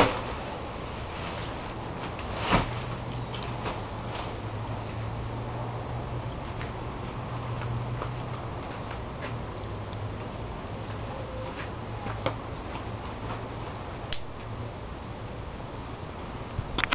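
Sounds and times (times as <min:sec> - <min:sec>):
fabric cover rustling: 0:00.0 - 0:04.4.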